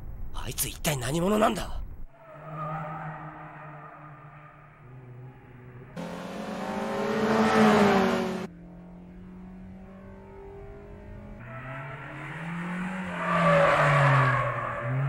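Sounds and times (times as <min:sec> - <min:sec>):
car engine high-revving: 0:04.8 - 0:13.2.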